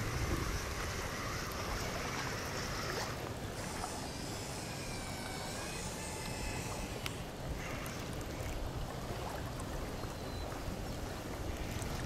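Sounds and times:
wind rumble on microphone: 0.0s - 4.5s
small electric motors whining: 0.0s - 8.1s
treads churning through water: 0.0s - 12.0s.

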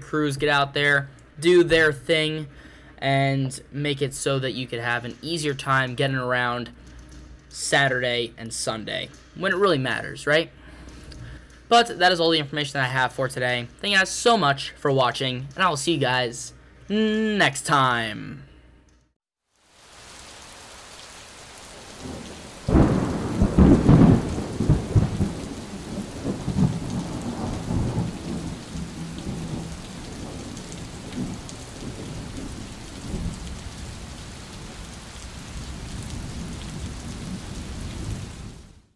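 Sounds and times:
steady rain: 19.5s - 38.9s
thunder rumbling: 21.7s - 38.9s
loud thunderclap: 22.0s - 38.8s.

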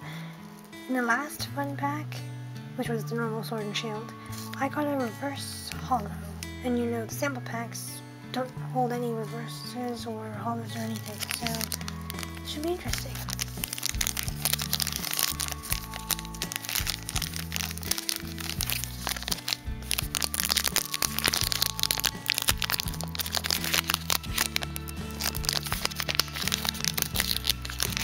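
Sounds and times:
background music with low notes: 0.0s - 28.0s
foil wrapper crackling: 10.8s - 28.0s.

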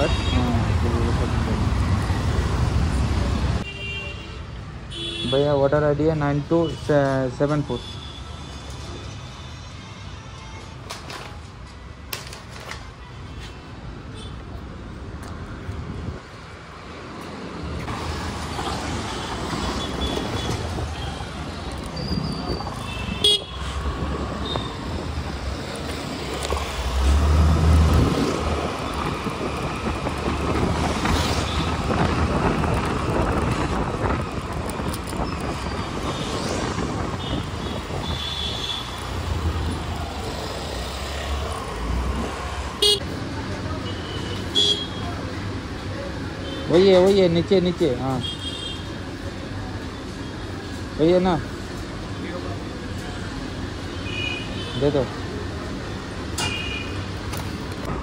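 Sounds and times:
motor vehicles passing: 17.3s - 43.8s
car horns tooting: 22.1s - 23.8s, 42.8s - 43.0s.

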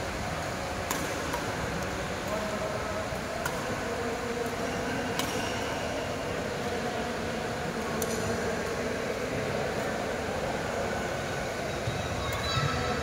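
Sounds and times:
steady background noise: 0.0s - 13.0s
racket hitting shuttlecock: 0.8s - 1.6s, 3.4s - 3.7s, 5.1s - 5.6s.

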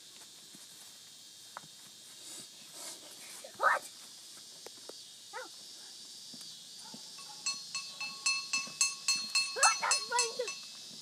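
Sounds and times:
metal bell ringing: 7.2s - 10.8s.

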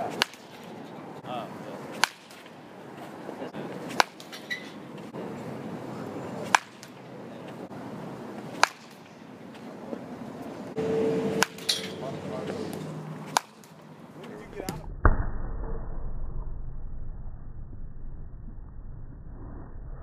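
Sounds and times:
baseball bat cracking balls: 0.0s - 1.0s, 1.9s - 3.2s, 3.8s - 5.1s, 6.4s - 7.7s, 8.3s - 10.0s, 11.4s - 14.8s.

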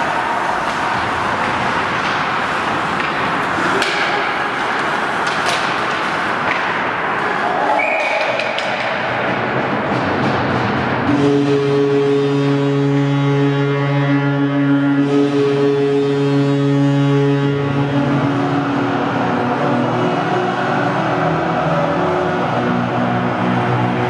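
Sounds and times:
skates hissing on ice: 0.0s - 7.8s
players calling out: 0.0s - 9.6s
hockey sticks and puck clacking: 0.0s - 11.2s.

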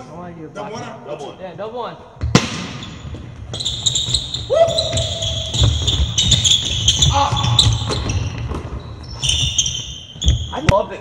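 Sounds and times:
basketball bouncing: 2.2s - 10.5s
sneakers squeaking on hardwood floor: 2.6s - 11.0s
feet pounding: 3.0s - 10.6s.

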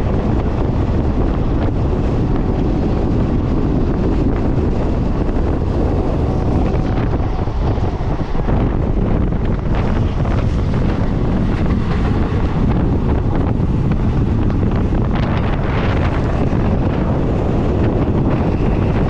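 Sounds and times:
moving train rumble: 0.0s - 19.0s
wind buffeting microphone: 0.0s - 19.0s.

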